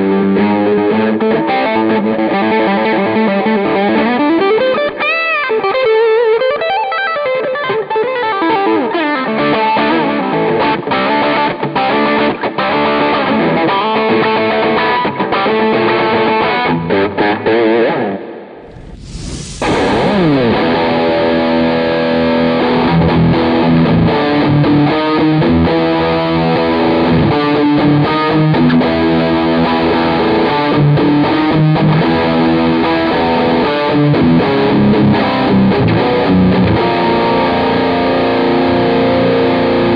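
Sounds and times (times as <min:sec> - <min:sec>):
short hiss: 0:18.6 - 0:20.6
distorted electric guitar: 0:18.6 - 0:21.4.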